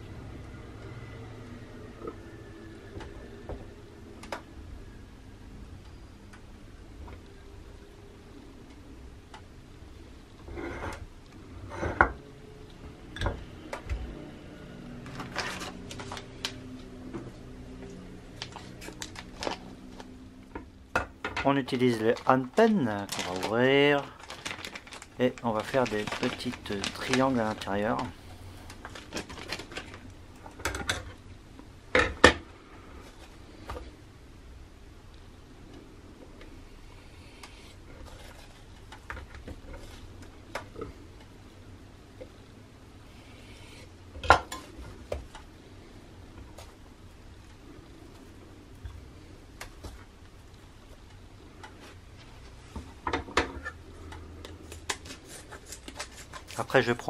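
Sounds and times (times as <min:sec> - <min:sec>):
plastic packaging crinkling: 0:15.0 - 0:16.8, 0:18.3 - 0:20.2, 0:21.5 - 0:30.5.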